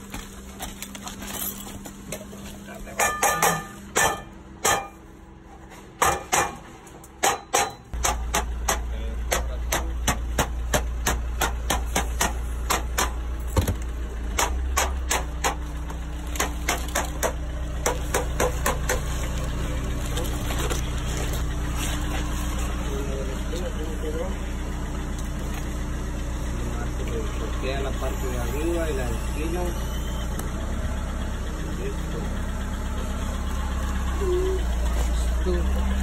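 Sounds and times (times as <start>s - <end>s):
engine hum: 0.0s - 36.0s
hammer tapping metal: 3.0s - 5.0s, 6.0s - 13.2s.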